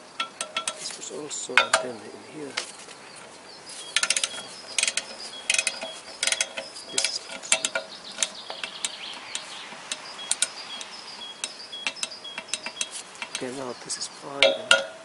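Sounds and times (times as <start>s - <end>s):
torque wrench clicking: 3.8s - 13.8s.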